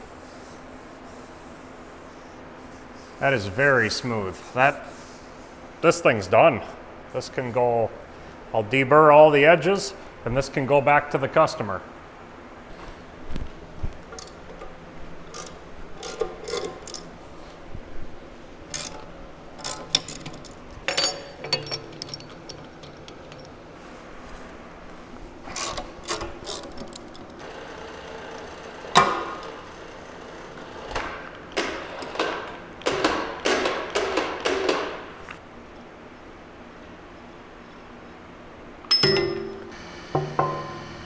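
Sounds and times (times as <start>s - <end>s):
metal tools clanking on iron table: 15.4s - 17.1s, 18.7s - 23.6s, 38.9s - 40.8s.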